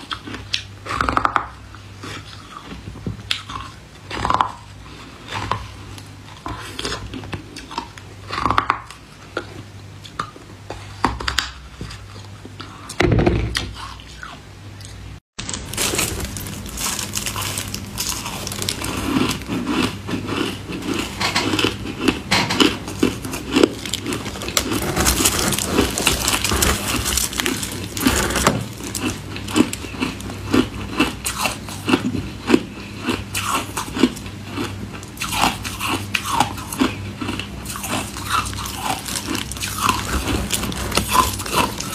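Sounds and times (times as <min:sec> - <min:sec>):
ice crunching while chewed: 0:00.0 - 0:41.9.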